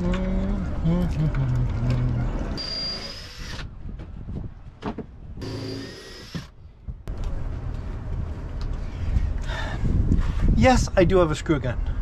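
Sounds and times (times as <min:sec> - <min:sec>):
cordless drill whining: 0:02.6 - 0:03.7, 0:05.4 - 0:06.5.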